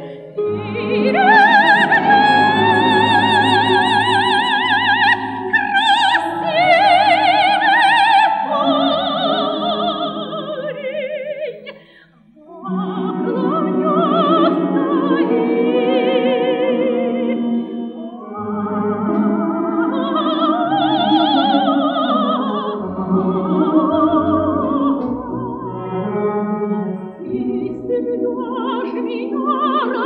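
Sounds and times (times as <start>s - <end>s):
folk instrument orchestra: 0.0s - 10.9s, 12.5s - 30.0s
operatic soprano singing: 0.0s - 30.0s.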